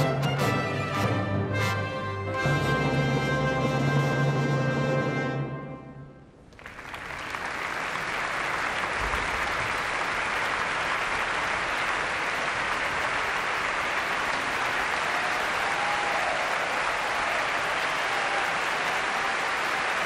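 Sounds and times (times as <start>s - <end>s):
music with long held notes: 0.0s - 6.2s
audience applauding: 6.5s - 20.0s.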